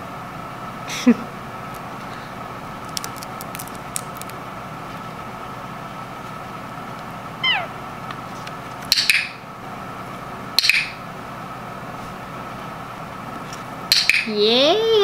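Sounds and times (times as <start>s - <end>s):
parakeet squeak: 7.4s - 7.8s.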